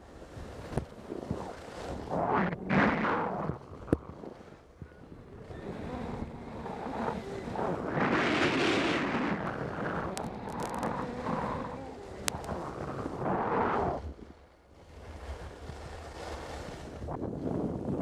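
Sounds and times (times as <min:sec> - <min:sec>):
wind noise on microphone: 0:00.0 - 0:18.0
skis scraping on snow: 0:00.4 - 0:03.5.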